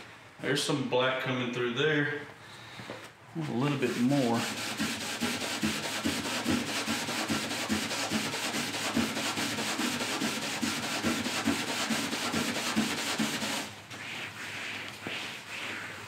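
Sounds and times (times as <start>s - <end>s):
scuff pad scrubbing painted metal: 3.4s - 16.0s.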